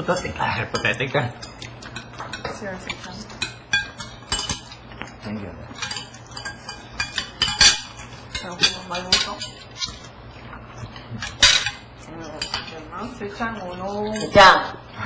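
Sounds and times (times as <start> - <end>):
cutlery clinking on a plate: 0.7 - 10.1, 11.2 - 12.7, 14.0 - 14.5.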